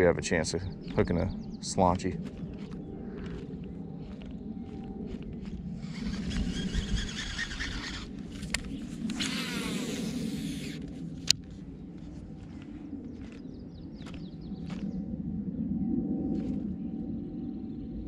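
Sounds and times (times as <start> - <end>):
steady low rumble: 0.0 - 18.0
fishing reel spool whirring: 5.8 - 10.9.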